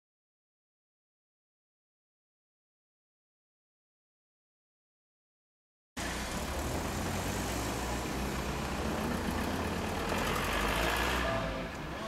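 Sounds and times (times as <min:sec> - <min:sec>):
car engine idling: 0:06.0 - 0:10.7.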